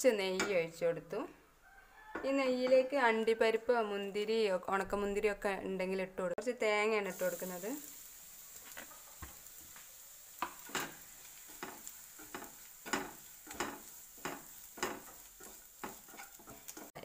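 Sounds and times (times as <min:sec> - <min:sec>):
faint sizzling: 0:06.5 - 0:17.0
spatula scraping a pan: 0:08.3 - 0:17.0.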